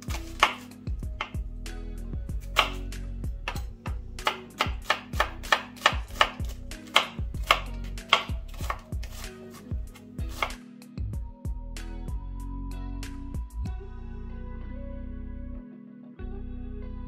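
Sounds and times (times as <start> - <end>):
knife chopping on wooden board: 0.0 - 1.4, 2.4 - 10.6.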